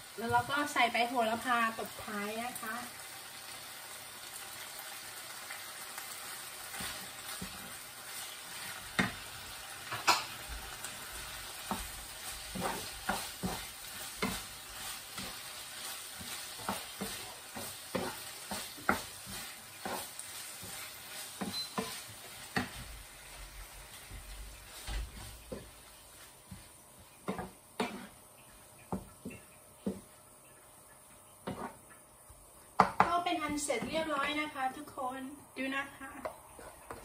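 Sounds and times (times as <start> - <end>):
food sizzling in a frying pan: 0.0 - 37.0
spatula knocking and scraping pan: 6.7 - 7.8, 8.5 - 9.3, 9.9 - 23.0, 23.7 - 28.2, 28.9 - 30.2, 31.4 - 31.8, 32.8 - 34.6, 36.2 - 37.0.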